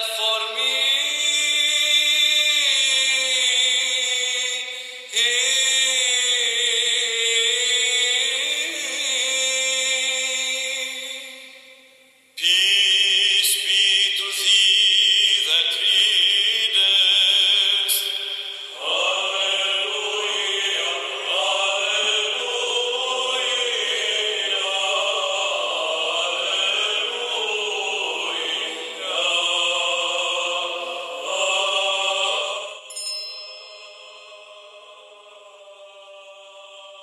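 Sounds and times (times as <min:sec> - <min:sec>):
choir singing a slow chant: 0:00.0 - 0:11.8, 0:12.4 - 0:32.9, 0:33.6 - 0:37.0.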